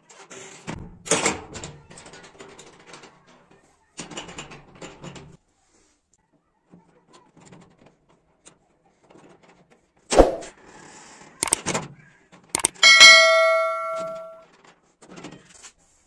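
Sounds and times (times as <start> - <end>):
bell-like ding: 12.6 - 14.4.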